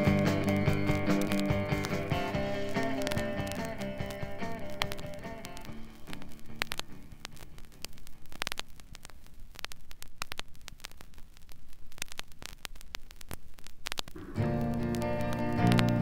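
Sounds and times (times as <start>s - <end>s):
vinyl clicks and pops: 0.0s - 16.0s.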